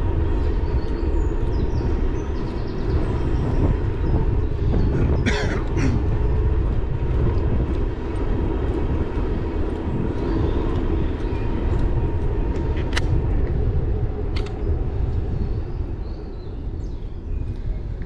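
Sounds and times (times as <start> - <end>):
wind buffeting microphone: 0.0 - 18.0
sharp clicks: 14.3 - 14.6.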